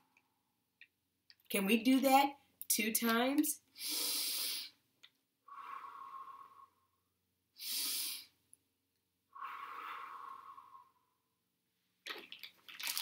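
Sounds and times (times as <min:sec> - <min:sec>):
woman breathing in through nose: 0:03.8 - 0:04.8, 0:05.4 - 0:07.0, 0:07.6 - 0:08.4, 0:09.3 - 0:11.2
woman blowing out breath: 0:09.3 - 0:11.1.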